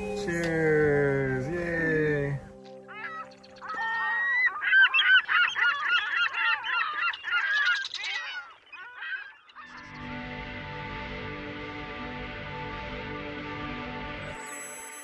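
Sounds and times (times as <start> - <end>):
flock of birds honking: 2.9 - 10.3.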